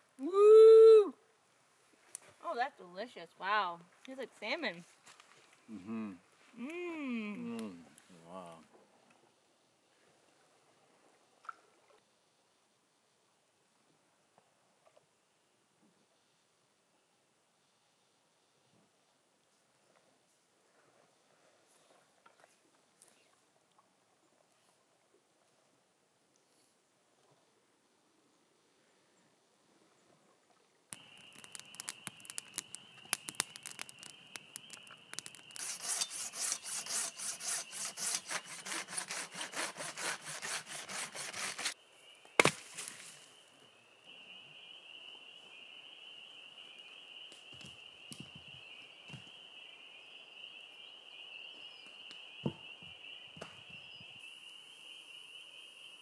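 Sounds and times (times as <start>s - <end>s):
spring peepers chorus: 30.9s - 36.6s, 43.0s - 56.0s
hand saw cutting log: 35.6s - 41.8s.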